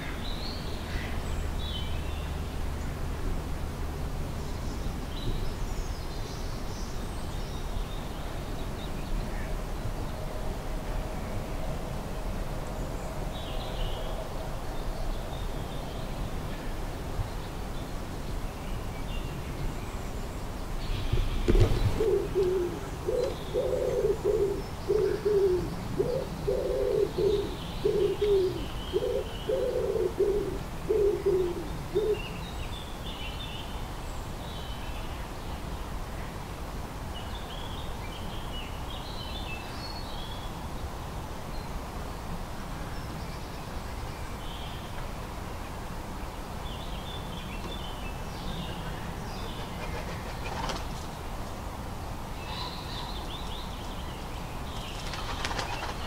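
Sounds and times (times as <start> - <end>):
songbirds chirping: 0.0 - 56.0
pigeon cooing: 21.9 - 32.3.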